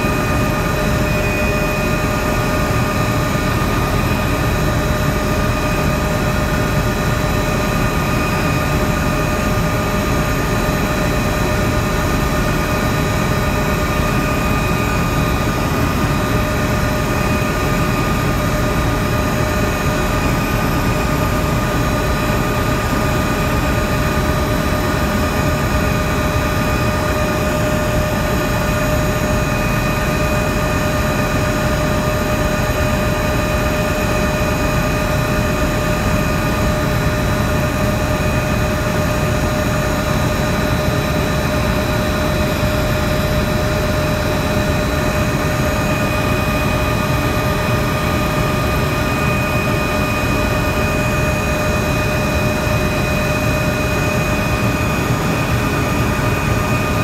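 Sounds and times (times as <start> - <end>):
constant high whine: 0.0 - 57.0
helicopter engine and rotor drone: 0.0 - 57.0.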